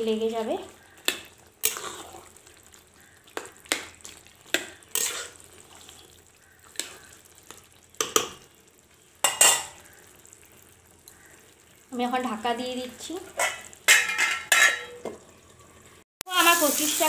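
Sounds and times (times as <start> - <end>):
faint sizzle: 0.0 - 17.0
spatula scraping curry in pan: 0.7 - 8.3
metal spatula clinking against pan: 13.4 - 15.0.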